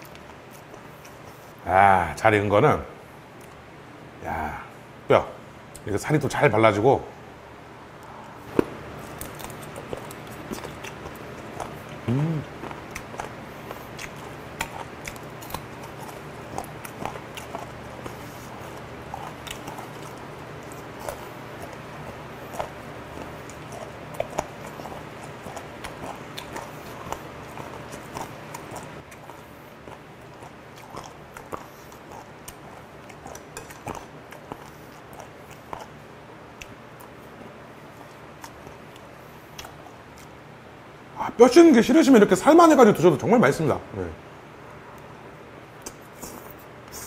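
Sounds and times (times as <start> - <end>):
chewing with wet mouth clicks: 0.0 - 1.4, 8.6 - 40.4, 45.8 - 47.0
low steady hum: 0.0 - 47.0.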